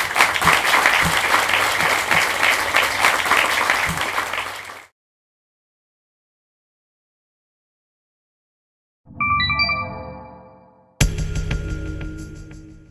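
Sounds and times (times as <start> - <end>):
audience applauding: 0.0 - 4.9.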